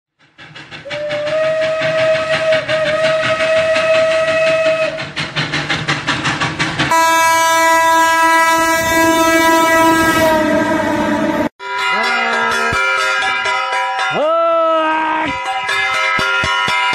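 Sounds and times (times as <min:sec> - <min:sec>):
train wheel clatter: 0:00.1 - 0:10.4, 0:15.2 - 0:16.9
train horn blast: 0:00.8 - 0:05.0, 0:06.9 - 0:11.5.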